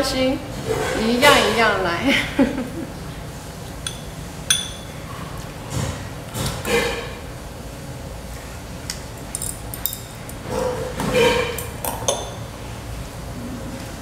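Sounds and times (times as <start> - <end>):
metal chopsticks clinking on bowl: 3.9 - 5.0.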